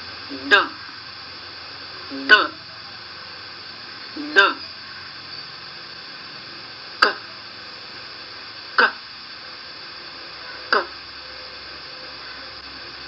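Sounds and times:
recording hiss: 0:00.0 - 0:13.0
person pronouncing k sound: 0:00.3 - 0:00.8, 0:02.1 - 0:02.6, 0:04.2 - 0:04.6, 0:08.8 - 0:09.0.

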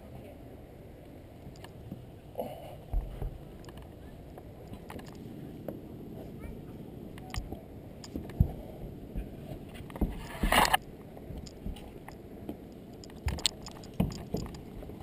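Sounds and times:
scrape on climbing wall: 0:09.4 - 0:10.8.

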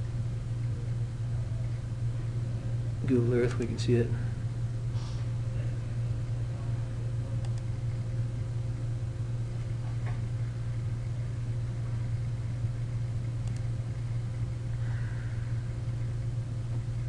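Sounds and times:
steady low hum: 0:00.0 - 0:17.0
faint click: 0:07.4 - 0:07.7.

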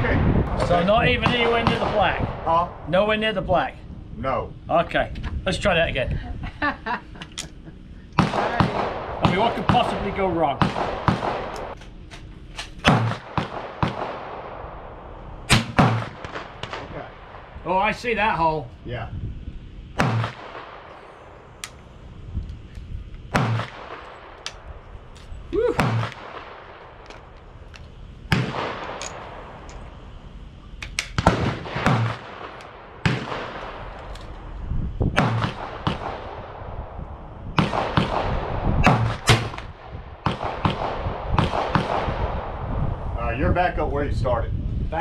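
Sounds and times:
gunshots with echo: 0:08.2 - 0:11.8, 0:12.8 - 0:14.6, 0:15.5 - 0:17.5, 0:20.0 - 0:20.9, 0:23.3 - 0:24.4, 0:25.7 - 0:26.8, 0:31.2 - 0:33.9, 0:35.2 - 0:36.6, 0:37.6 - 0:42.5.

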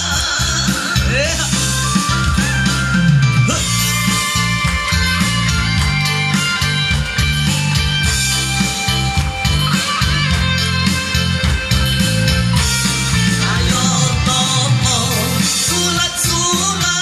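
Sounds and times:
bass line: 0:00.0 - 0:17.0
guitar-led band music: 0:00.0 - 0:17.0.

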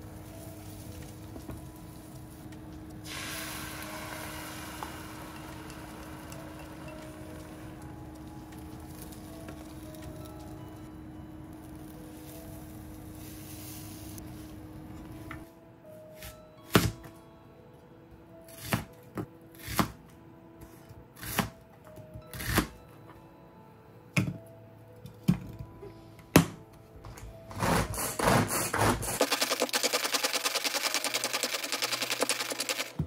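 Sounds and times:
soft background music: 0:00.0 - 0:33.0
pan sizzling: 0:03.0 - 0:10.6, 0:29.2 - 0:33.0
knife chopping onion: 0:19.6 - 0:20.0, 0:27.5 - 0:29.4.

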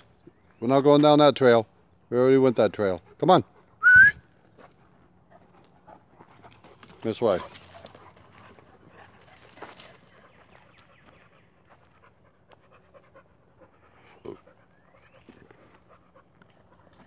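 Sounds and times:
dog panting: 0:04.6 - 0:17.0.

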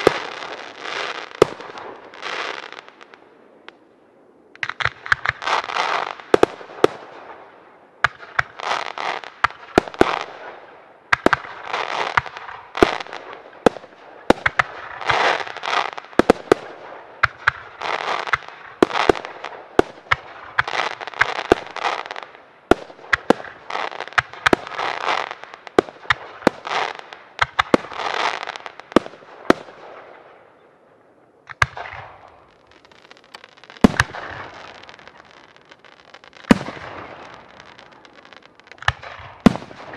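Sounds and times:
fireworks bangs: 0:00.0 - 0:03.8, 0:04.6 - 0:39.9.

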